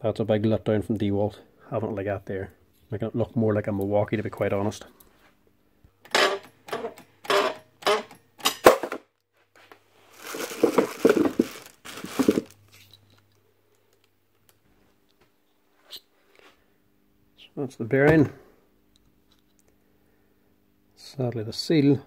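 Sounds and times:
plastic bag crinkling: 0:10.0 - 0:13.0
plastic bin being handled: 0:10.1 - 0:12.7.

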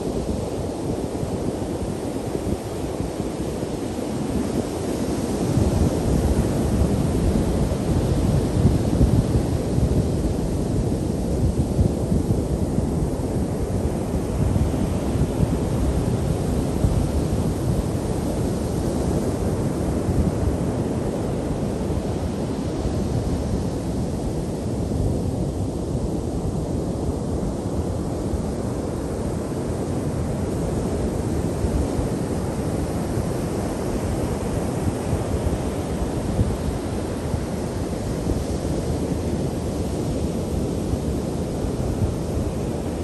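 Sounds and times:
wind buffeting microphone: 0:00.0 - 0:43.0.

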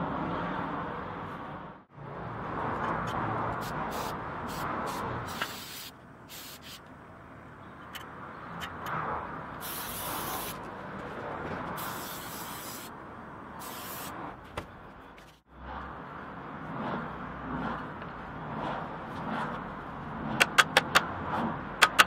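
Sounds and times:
spray paint can hissing: 0:03.6 - 0:06.9, 0:09.6 - 0:10.7, 0:11.8 - 0:12.9, 0:13.6 - 0:14.2.

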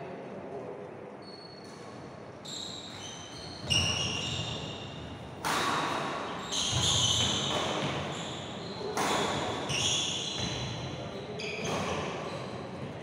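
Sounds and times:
shoes squeaking on wooden floor: 0:02.4 - 0:05.1, 0:06.3 - 0:13.0
racket hitting shuttlecock: 0:05.3 - 0:08.1, 0:08.9 - 0:09.7.

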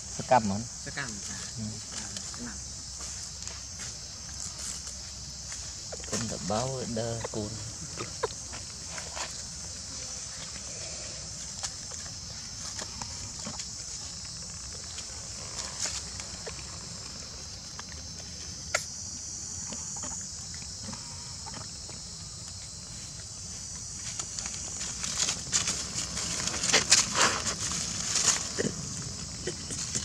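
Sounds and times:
steady high hiss: 0:00.0 - 0:30.0
dry leaves crackling and rustling: 0:24.0 - 0:29.9.

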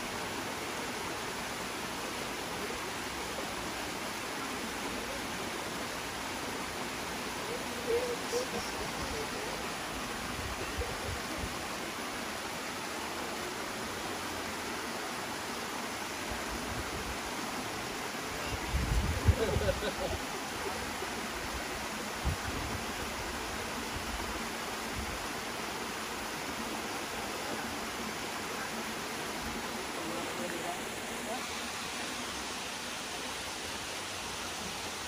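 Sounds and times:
waterfall pouring into pool: 0:00.0 - 0:35.0
faint voice: 0:07.4 - 0:11.7.

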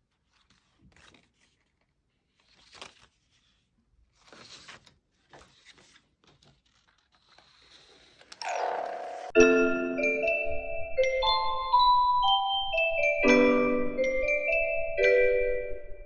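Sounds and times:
paper strip rustling and sliding: 0:00.1 - 0:08.4.

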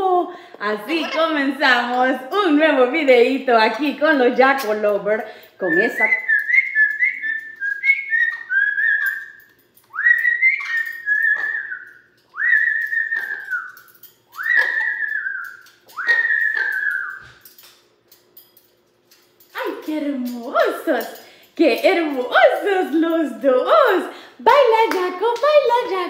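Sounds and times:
parrot whistling: 0:05.6 - 0:17.5.

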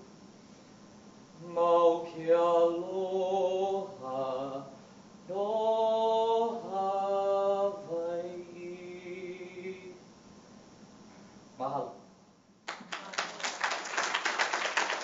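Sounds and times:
man singing unaccompanied: 0:01.4 - 0:10.0.

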